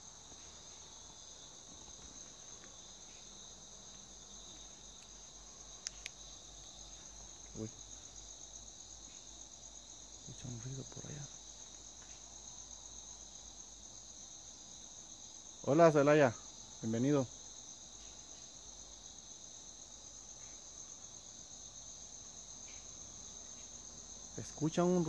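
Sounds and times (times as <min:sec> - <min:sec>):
crickets trilling: 0:00.0 - 0:25.0
faint clicks: 0:05.8 - 0:06.2.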